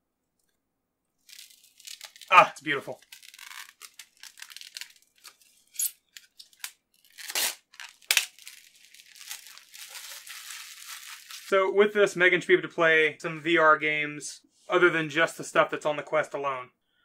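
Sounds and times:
plastic film crumpled in hand: 1.2 - 11.6
plastic film peeling: 1.2 - 11.6.

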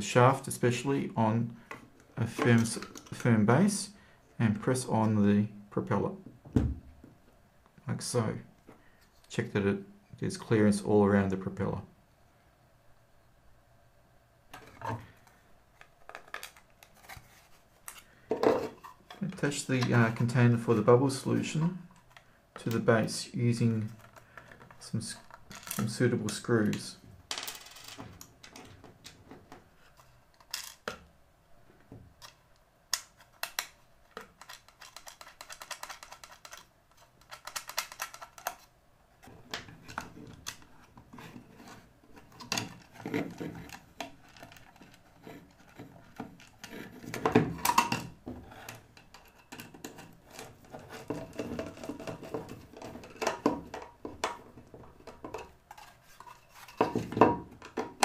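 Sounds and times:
plastic parts clicking: 15.8 - 17.2, 27.6 - 31.1, 32.2 - 41.0, 42.2 - 58.0.

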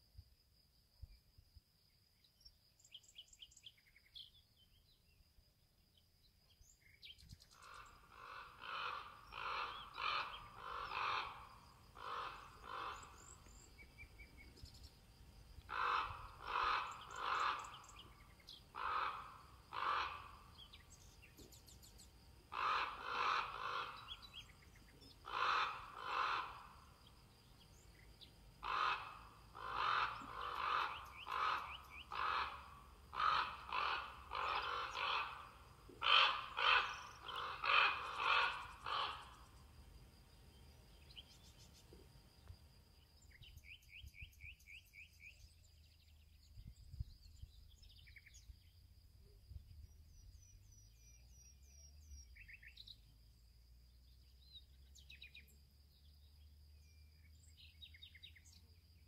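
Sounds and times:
faint small-bird chirps: 1.0 - 8.0, 12.6 - 15.7, 20.5 - 22.2, 24.0 - 25.2, 27.0 - 28.4, 40.3 - 59.0
crow cawing: 7.6 - 13.5, 15.7 - 20.7, 22.5 - 24.4, 25.2 - 27.0, 28.6 - 39.5.

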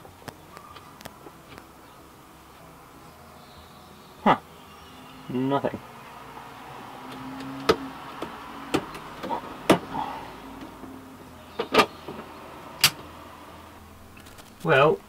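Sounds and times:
toggle switches clicking: 12.8 - 13.1.

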